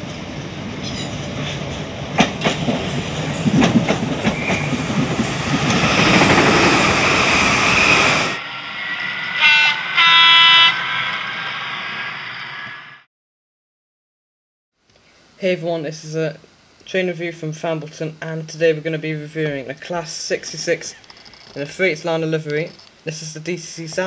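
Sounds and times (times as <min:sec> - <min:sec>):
train running on rails: 0:00.0 - 0:13.1
train horn blasts: 0:09.2 - 0:11.2.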